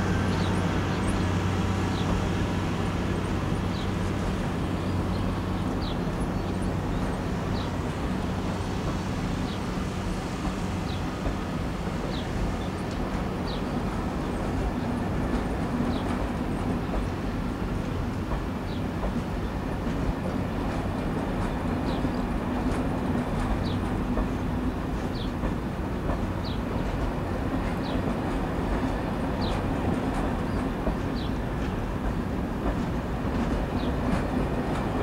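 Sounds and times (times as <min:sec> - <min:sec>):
diesel locomotive engine running: 0:00.0 - 0:35.0
train coaches rolling on track: 0:00.0 - 0:35.0.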